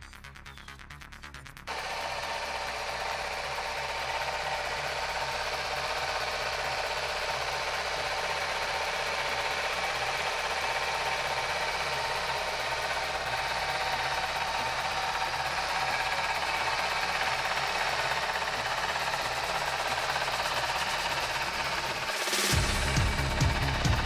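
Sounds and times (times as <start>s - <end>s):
music: 0.0s - 2.0s, 21.2s - 24.0s
motorcycle engine idling: 1.7s - 24.0s.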